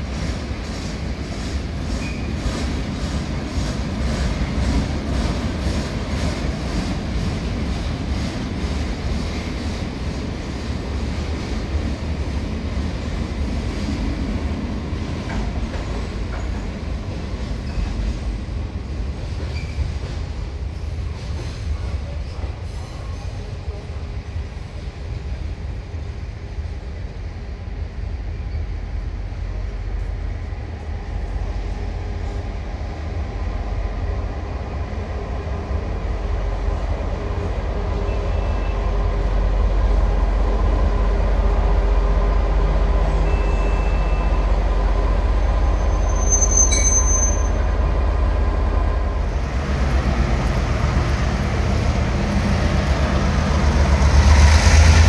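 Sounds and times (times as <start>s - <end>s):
brief high squeak: 2.0s - 2.3s, 19.5s - 19.9s, 43.2s - 44.4s, 45.8s - 47.6s
locomotive engine rumbling: 28.9s - 55.0s.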